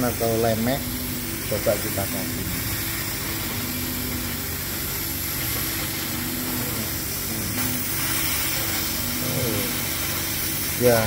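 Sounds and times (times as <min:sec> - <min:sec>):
laser cutter hiss and hum: 0:00.0 - 0:11.0
low machine tone: 0:00.0 - 0:11.0.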